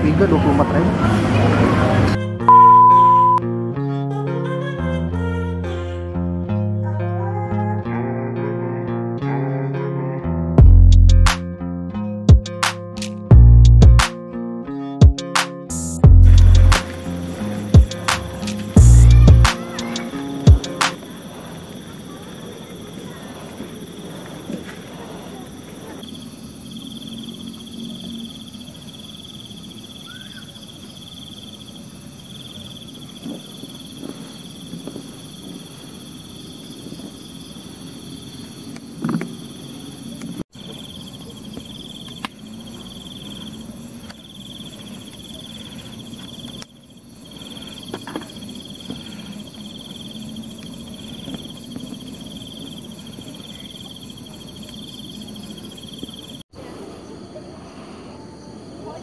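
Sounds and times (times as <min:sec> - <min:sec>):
crickets chirping: 0:02.5 - 0:03.4, 0:15.2 - 0:59.0.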